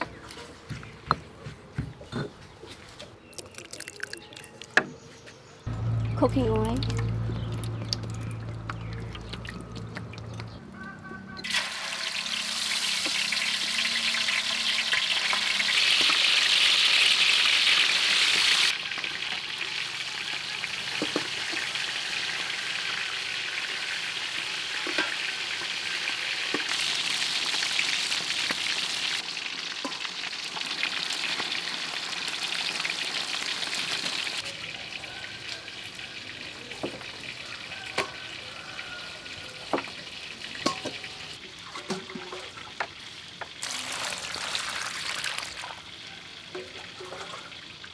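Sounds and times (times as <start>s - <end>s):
food sizzling in hot oil: 11.4s - 47.9s.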